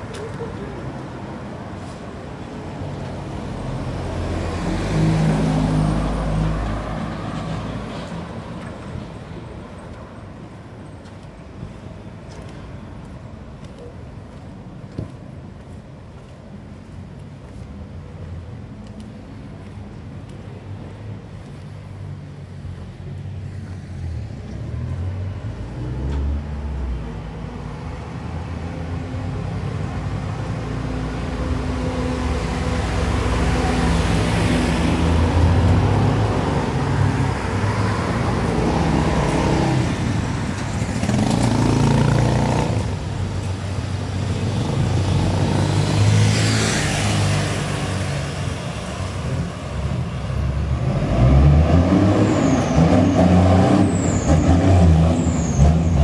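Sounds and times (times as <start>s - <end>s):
cars passing close by: 0.0s - 13.5s, 19.3s - 56.0s
vehicle engines running: 24.3s - 56.0s.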